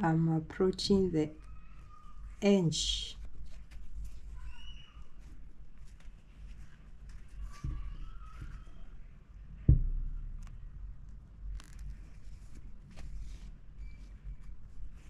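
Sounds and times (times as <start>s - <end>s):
fabric rustles and clicks: 3.2s - 15.0s
low background rumble: 9.3s - 13.2s
sharp knock: 9.7s - 10.5s.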